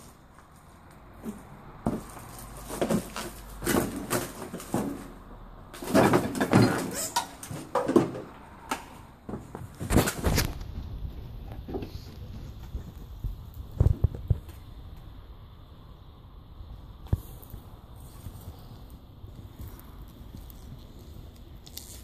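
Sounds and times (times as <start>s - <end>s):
stepping over debris: 0.0s - 8.4s
rustling and scraping: 0.0s - 15.1s, 17.0s - 22.0s.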